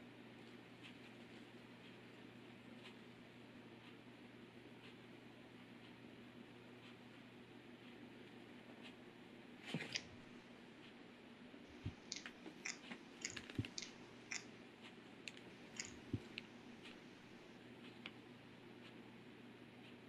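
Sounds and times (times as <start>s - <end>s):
faint steady low hum: 0.0s - 20.0s
gecko chewing crunchy clicks: 11.8s - 14.5s, 15.3s - 16.5s.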